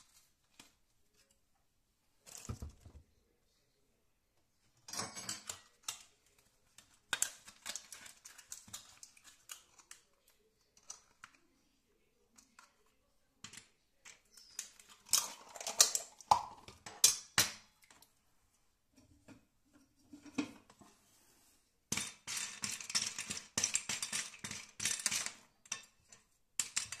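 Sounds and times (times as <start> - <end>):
kitchen clicks and knocks: 4.8 - 6.2, 6.8 - 10.0, 13.4 - 17.8, 19.0 - 20.9, 21.9 - 27.0
utensil stirring pasta in a bowl: 5.1 - 11.4, 12.0 - 18.2, 21.8 - 27.0.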